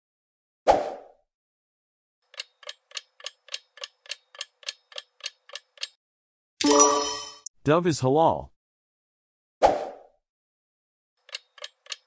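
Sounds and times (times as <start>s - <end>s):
clock ticking: 2.3s - 6.0s, 11.2s - 12.0s.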